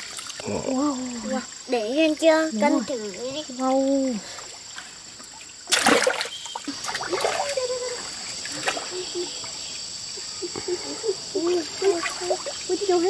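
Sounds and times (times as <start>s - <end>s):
water trickling: 0.0s - 13.0s
hands splashing in water: 5.6s - 7.7s.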